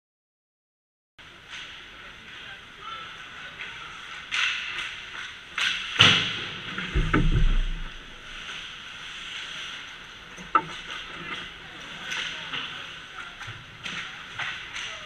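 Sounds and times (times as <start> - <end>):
sticks cracking on puck: 4.3 - 6.2
heavy low thuds: 6.9 - 8.4.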